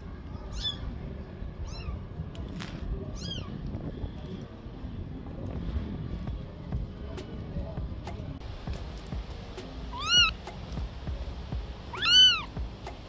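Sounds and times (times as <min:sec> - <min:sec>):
steady low rumble: 0:00.0 - 0:13.0
kitten meowing: 0:00.5 - 0:00.8, 0:01.6 - 0:02.0, 0:09.9 - 0:10.4, 0:11.9 - 0:12.5.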